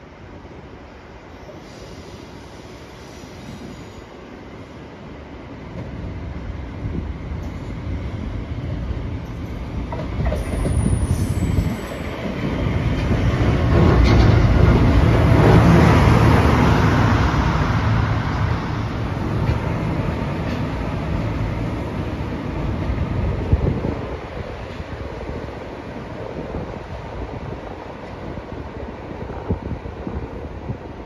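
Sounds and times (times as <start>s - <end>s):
rail vehicle engine and wheels: 0.0s - 31.0s
high thin squeal: 10.4s - 12.0s.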